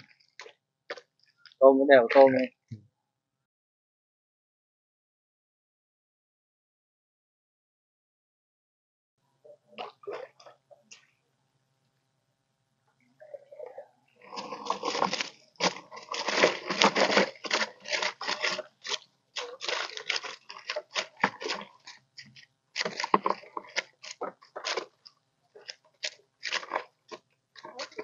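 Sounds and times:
wet net crackling and rustling: 14.2 - 28.0.

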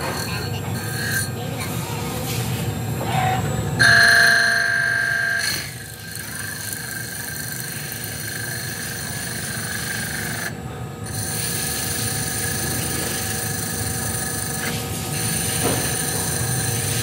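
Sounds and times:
metal lathe humming: 0.0 - 1.5, 3.8 - 17.0
high cutting whine: 3.7 - 17.0.

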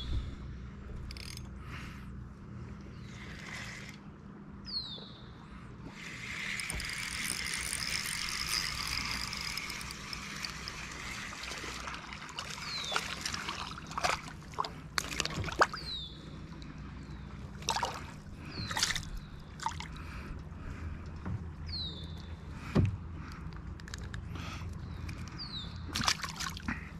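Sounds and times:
lake water splashing and sloshing: 10.3 - 20.3, 25.9 - 26.9.

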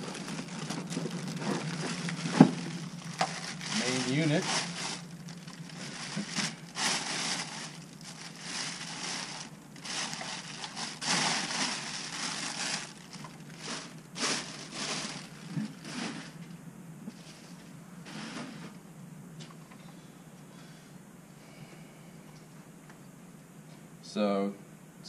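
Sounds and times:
plastic bag crinkling: 0.0 - 16.5.

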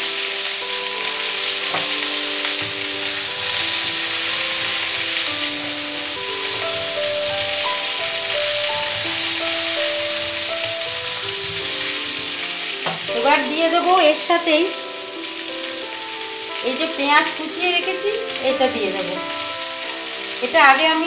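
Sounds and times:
slow instrumental music: 0.0 - 21.0
vegetables sizzling in a wok: 0.0 - 21.0
wooden spatula stirring: 1.0 - 14.3.

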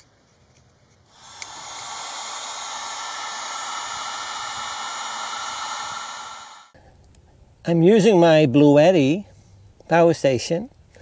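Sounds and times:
heat gun fan hiss: 1.1 - 6.8.

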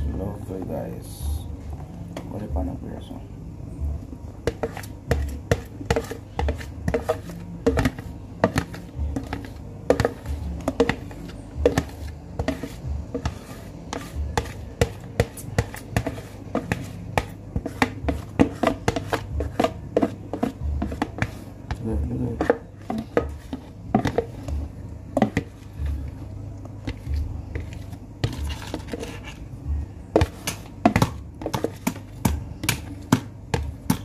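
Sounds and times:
utensil scraping and knocking dish: 4.4 - 26.0, 26.8 - 29.5.

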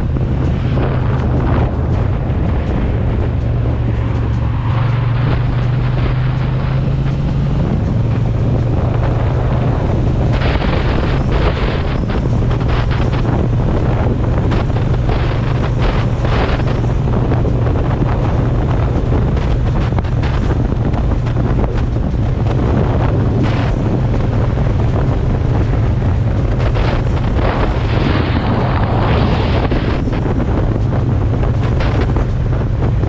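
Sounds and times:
motorcycle engine drone: 0.0 - 33.0
wind buffeting microphone: 0.0 - 33.0.

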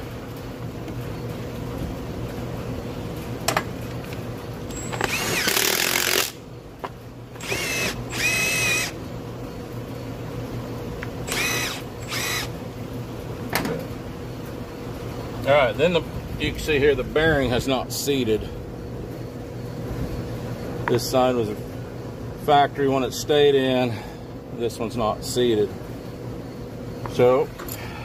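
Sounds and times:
impact wrench bursts: 4.7 - 6.4, 7.4 - 9.0, 11.2 - 12.5.

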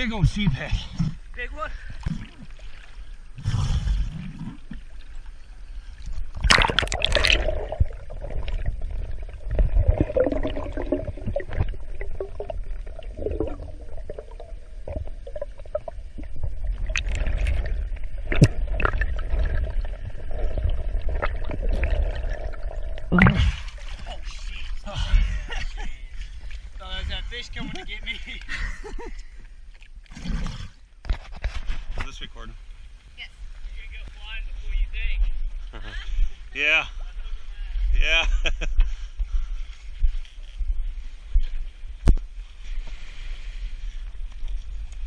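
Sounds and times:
water gurgling: 0.0 - 28.7
underwater rumble: 0.0 - 45.0.

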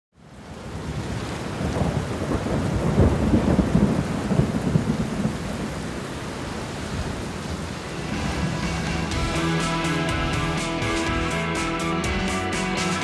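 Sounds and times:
heavy rain: 0.2 - 13.0
thunder rumbling: 0.9 - 6.2, 6.9 - 9.6.

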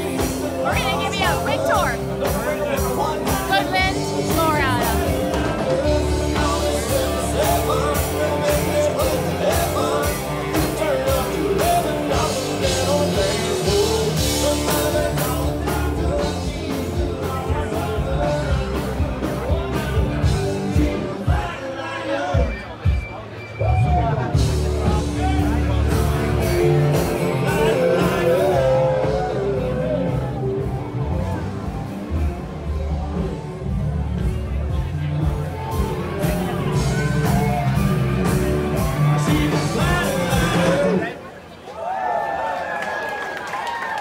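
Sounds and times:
steady drumbeat: 0.0 - 21.6, 24.2 - 41.0
live rock band playing: 0.0 - 41.4
person singing: 2.8 - 22.6, 24.4 - 30.9, 36.0 - 41.2.

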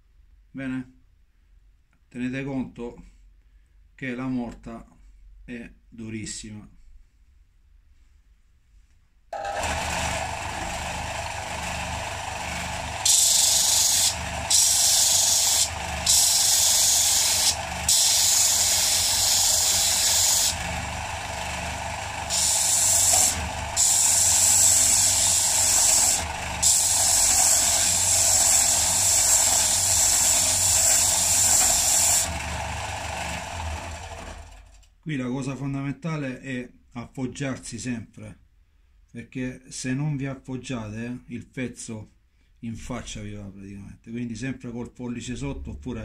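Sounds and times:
wood grinding against sanding disc: 9.4 - 34.6
disc sander running: 9.4 - 34.8.

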